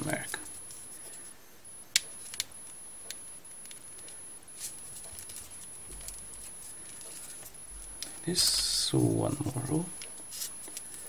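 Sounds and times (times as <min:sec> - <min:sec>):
paper clicks and rustles: 0:03.6 - 0:07.6.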